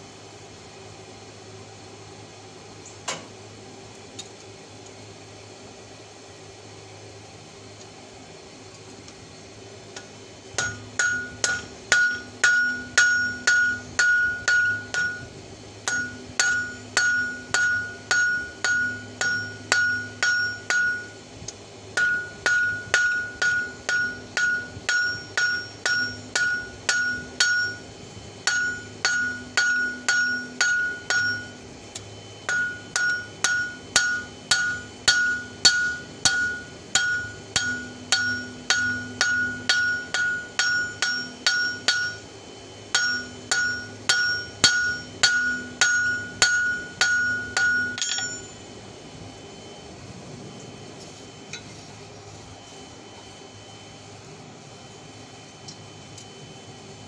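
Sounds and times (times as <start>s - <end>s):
hammer striking metal on anvil: 10.0s - 21.2s, 22.0s - 42.3s, 42.9s - 48.6s.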